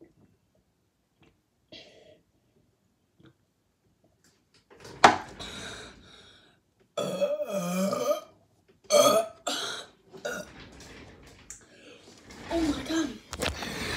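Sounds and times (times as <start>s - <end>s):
boy burping: 7.0s - 10.5s.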